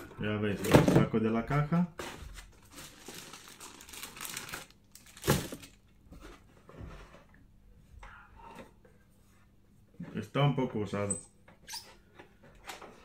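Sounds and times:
plastic wrapping crinkling: 2.0 - 5.9.

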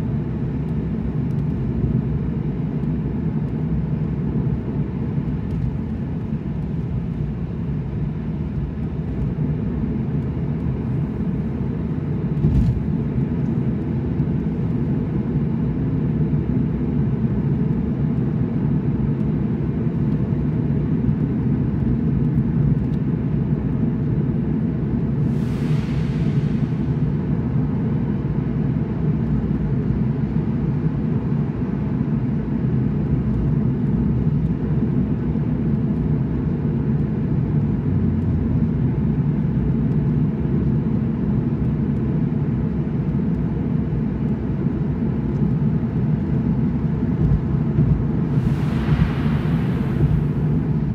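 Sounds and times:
car engine and tyre rumble: 0.0 - 50.9
brief rushing hiss: 48.3 - 50.8.

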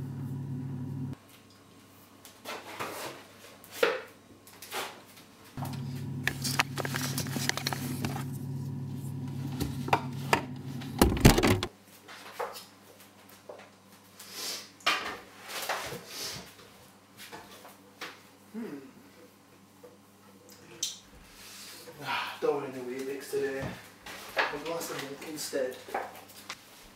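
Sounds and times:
fridge hum: 0.0 - 1.2, 5.6 - 11.7.

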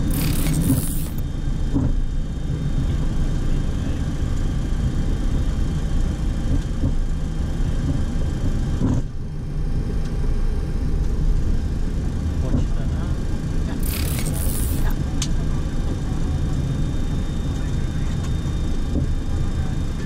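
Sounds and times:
jet engines idling rumble: 14.8 - 20.0.

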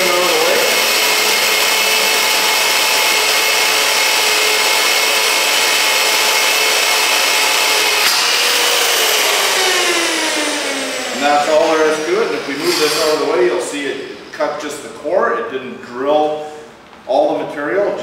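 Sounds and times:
cutter grinding metal: 0.0 - 14.3
core drill motor whine: 0.0 - 14.4
drill click: 0.1 - 13.5.

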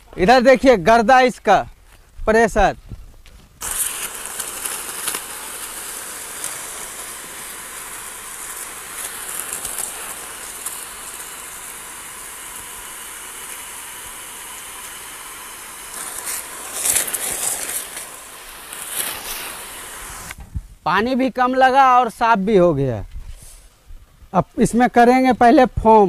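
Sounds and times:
pressure washer jet hissing: 3.6 - 20.4.

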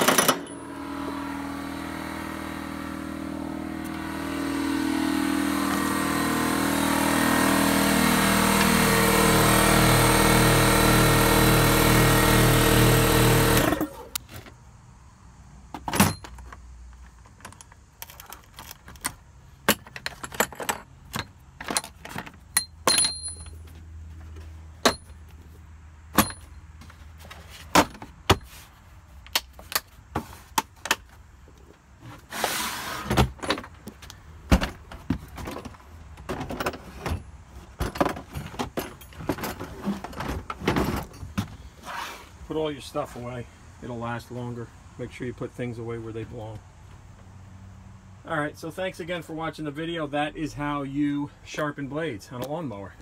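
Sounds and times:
lawn mower engine running: 0.0 - 14.2
tools clattering: 15.8 - 25.3, 26.1 - 28.5.

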